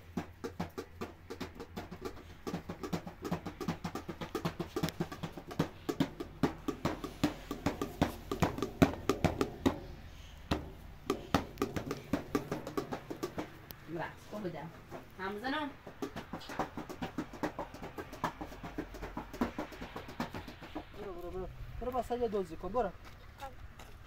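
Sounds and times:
fast drum-led music: 0:00.0 - 0:09.8, 0:15.9 - 0:21.0.

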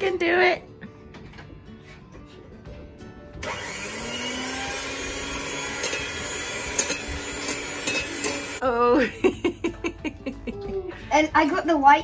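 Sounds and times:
electric hand mixer whisking: 0:03.4 - 0:08.6.

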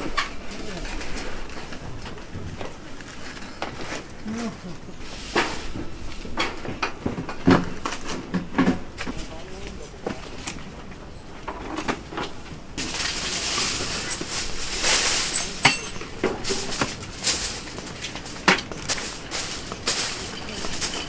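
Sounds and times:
aluminium foil crinkling: 0:12.8 - 0:21.0.

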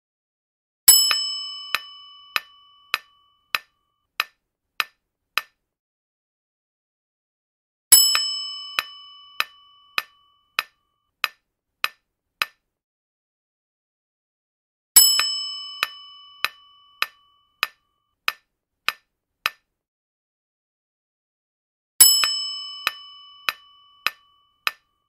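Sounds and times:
bright bell ding: 0:00.9 - 0:03.7, 0:08.0 - 0:10.8, 0:15.0 - 0:17.8, 0:22.0 - 0:24.8.

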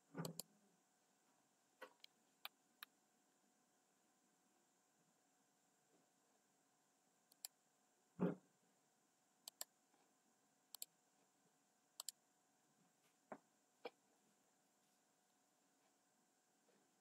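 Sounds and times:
computer mouse clicks: 0:00.2 - 0:00.5, 0:07.3 - 0:07.6, 0:09.4 - 0:09.7, 0:10.7 - 0:10.9, 0:12.0 - 0:12.2.

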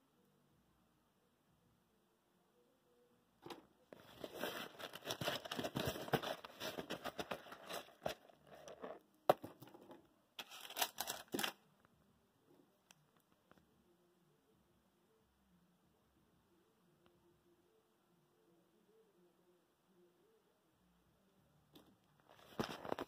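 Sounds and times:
cables and packaging rustling: 0:03.4 - 0:11.6, 0:22.2 - 0:23.0.

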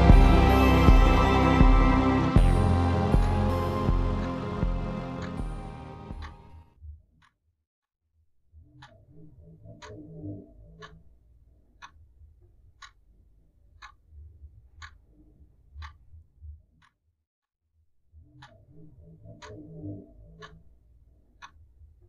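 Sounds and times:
clock ticking: 0:00.0 - 0:06.4
low rumble: 0:00.0 - 0:06.5.

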